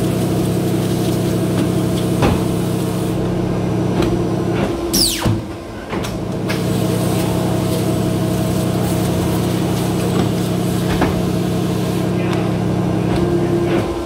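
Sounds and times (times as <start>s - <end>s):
paper cutter motor hum: 6.2s - 13.7s.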